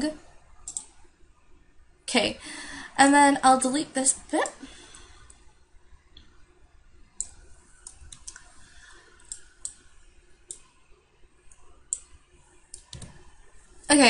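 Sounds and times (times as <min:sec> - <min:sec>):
low background hum: 0:00.0 - 0:14.0
mouse and keyboard clicks: 0:00.6 - 0:00.9.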